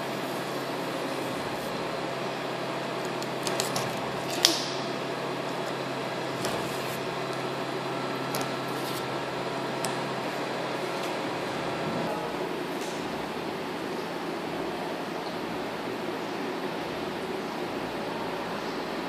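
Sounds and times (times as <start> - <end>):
room ventilation hum: 0.0 - 19.0.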